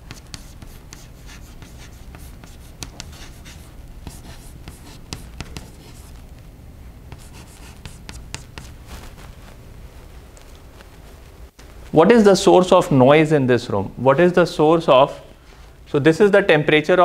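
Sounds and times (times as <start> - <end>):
chalk scratching on blackboard: 0.0 - 6.2, 7.1 - 8.8
steady low hum: 0.0 - 16.2.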